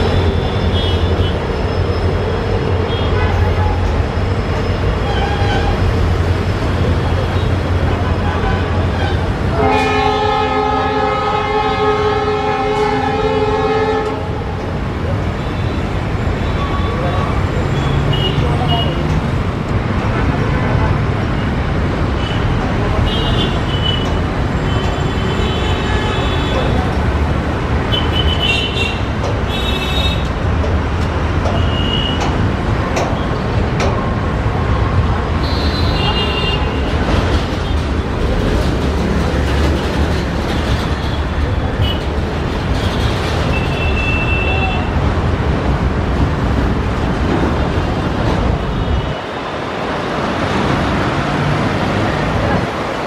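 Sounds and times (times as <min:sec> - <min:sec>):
train rumbling: 0:00.0 - 0:53.0
locomotive air horn blast: 0:08.5 - 0:14.4
train wheel clicks: 0:29.1 - 0:34.2
locomotives rumbling: 0:36.8 - 0:43.7.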